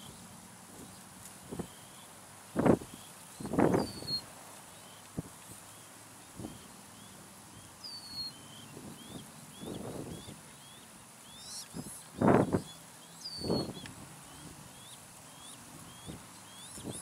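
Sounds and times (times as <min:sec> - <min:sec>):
crane chicks peeping: 0:00.0 - 0:17.0.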